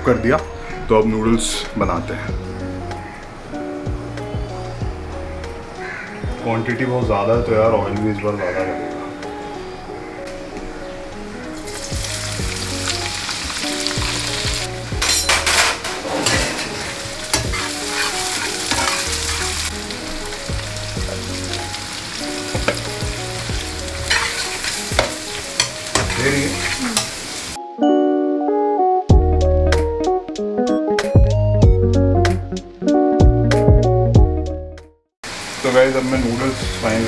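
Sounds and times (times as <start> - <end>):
background music: 0.0 - 35.0, 35.8 - 37.0
vegetables sizzling in hot oil: 11.6 - 15.8, 16.7 - 27.6, 35.2 - 37.0
metal spatula scraping a pan: 15.0 - 19.7, 24.0 - 26.8.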